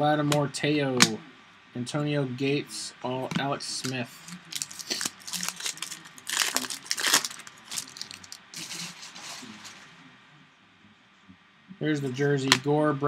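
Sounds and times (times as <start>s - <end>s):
cards being handled: 3.3s - 9.8s
foil wrapper crinkling: 4.2s - 9.7s.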